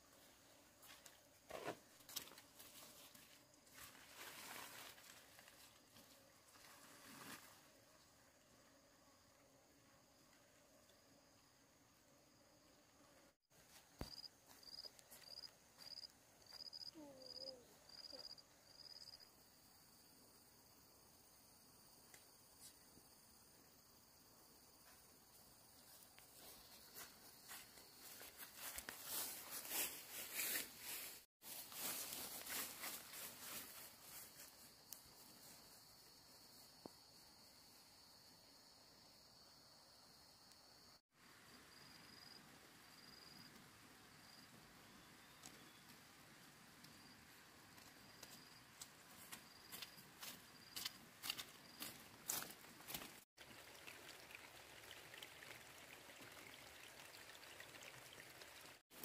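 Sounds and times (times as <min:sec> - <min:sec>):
insect chirping: 0:13.8 - 0:28.4, 0:32.6 - 0:45.8, 0:46.9 - 0:52.5.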